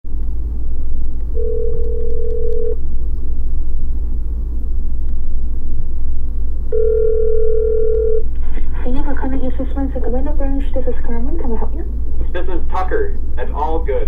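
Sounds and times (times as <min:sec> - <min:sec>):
low rumble: 0:00.1 - 0:14.0
telephone ringback tone: 0:01.4 - 0:02.8, 0:06.7 - 0:08.2.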